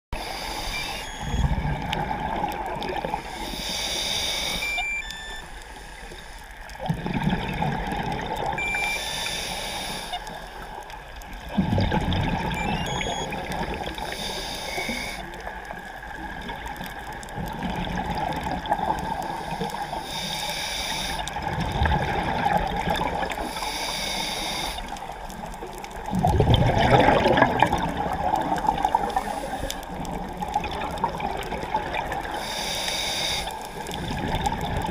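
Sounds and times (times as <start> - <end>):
regulator hissing inhale: 0.2 - 1.1, 3.2 - 4.8, 5.4 - 6.4, 8.8 - 10.8, 13.8 - 15.5, 19.2 - 21.4, 23.4 - 25.1, 29.0 - 29.9, 32.2 - 34.0
gurgling exhaled bubbles: 0.7 - 3.4, 6.7 - 8.9, 11.4 - 14.1, 15.4 - 19.9, 21.3 - 23.6, 24.8 - 32.4, 33.8 - 34.9.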